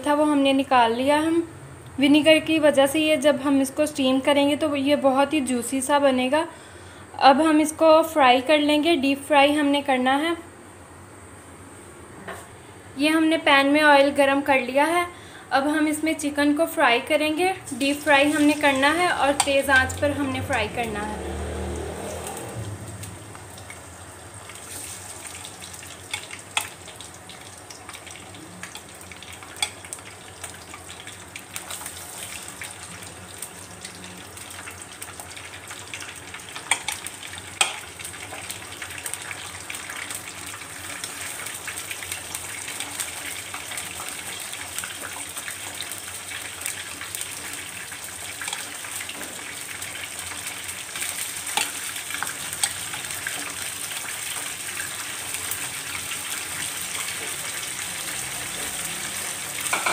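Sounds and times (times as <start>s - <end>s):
chicken sizzling in hot oil: 15.6s - 59.9s.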